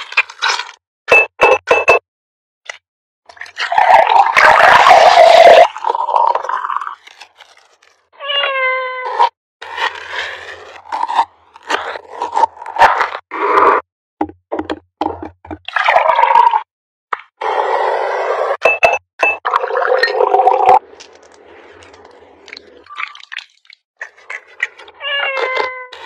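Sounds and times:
cat meowing: 8.2 - 9.2, 25.0 - 26.0.

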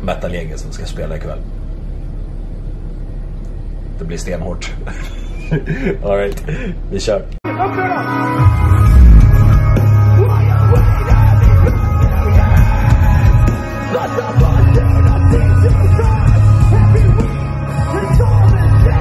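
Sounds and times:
metal band playing loud: 7.6 - 19.0.

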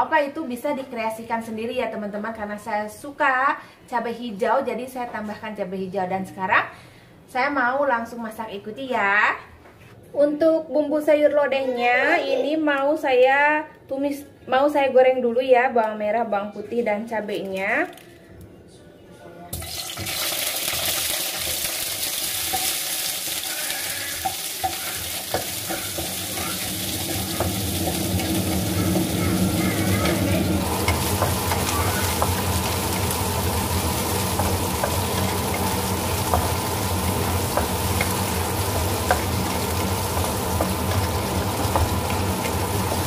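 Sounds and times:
vegetables sizzling in hot oil: 19.6 - 43.0
wooden spatula stirring: 24.1 - 43.0.

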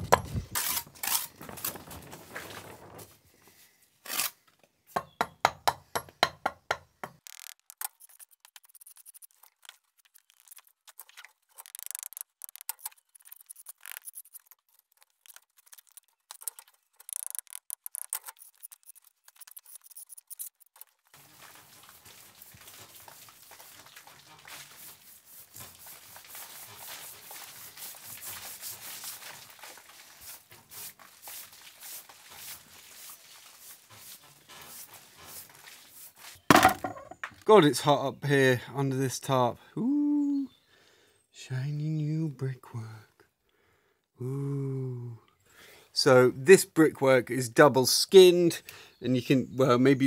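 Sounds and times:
rough scratching of brickwork rubbed: 0.0 - 2.5, 4.0 - 4.4, 7.0 - 37.2
trowel scraping and tapping on bricks: 4.1 - 9.9.

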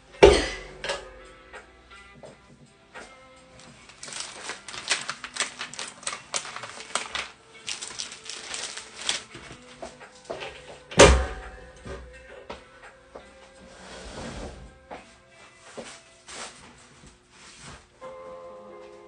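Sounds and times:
crackling rustling clicks: 3.6 - 10.6.

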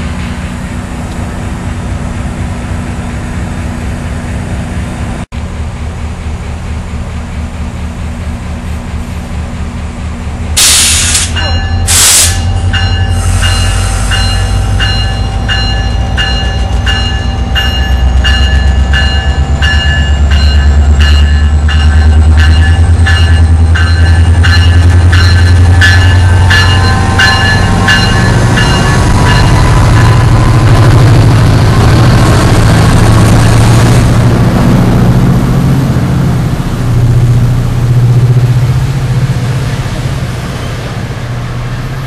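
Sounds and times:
diesel locomotive rumble: 0.0 - 42.0
bell ringing: 11.3 - 30.4.

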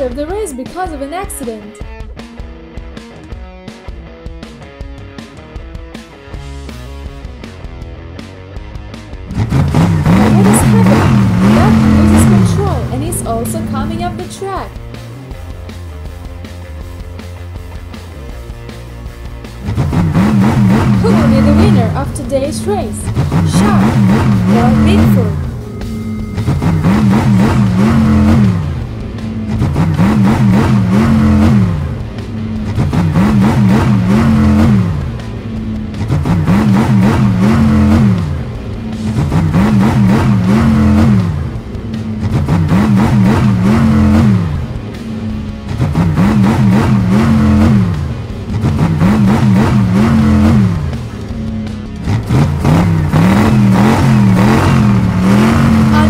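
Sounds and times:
background music: 0.0 - 56.0
truck engines revving: 3.2 - 56.0.

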